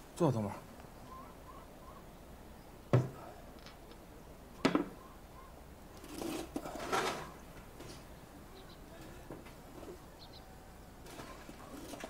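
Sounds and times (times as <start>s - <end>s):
dishes knocking on wooden table: 2.9s - 3.2s, 4.6s - 5.0s
chair scraping and rustling: 6.0s - 8.1s, 9.0s - 10.1s, 11.0s - 12.0s.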